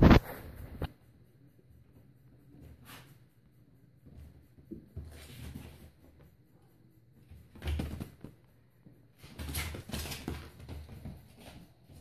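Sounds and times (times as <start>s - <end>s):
paws thudding and scuffling: 9.2s - 12.0s.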